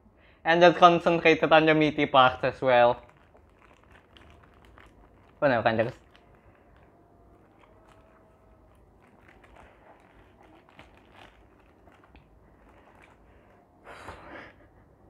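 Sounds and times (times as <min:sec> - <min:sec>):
paper wrapper crinkling: 0:02.2 - 0:13.8
quiet chewing: 0:03.0 - 0:14.3.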